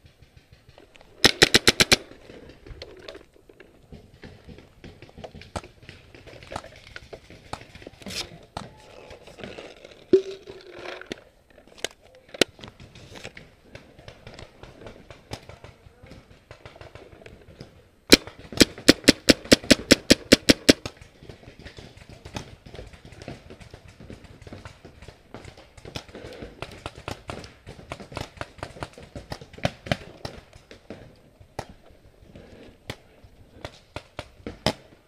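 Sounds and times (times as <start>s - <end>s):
distant paintball shots: 0.0s - 2.2s, 12.4s - 31.8s, 32.4s - 35.0s
paintball marker rapid firing: 1.2s - 2.1s, 18.1s - 30.5s.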